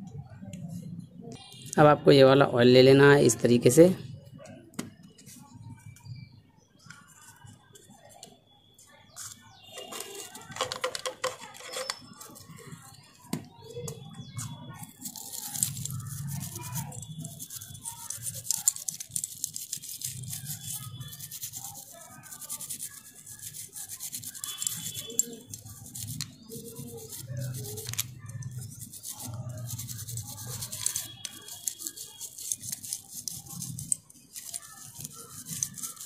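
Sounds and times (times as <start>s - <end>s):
toothbrush scrubbing metal: 14.3s - 36.0s.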